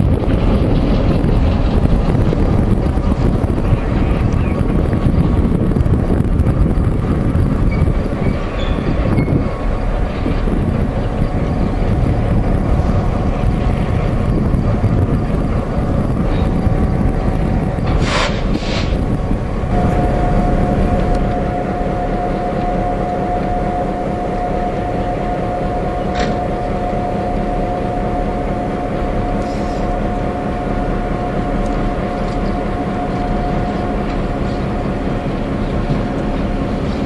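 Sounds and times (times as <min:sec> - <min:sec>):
locomotive low rumble: 0:00.0 - 0:37.0
steady high tone: 0:04.7 - 0:17.8, 0:19.0 - 0:37.0
air hiss bursts: 0:18.0 - 0:19.0.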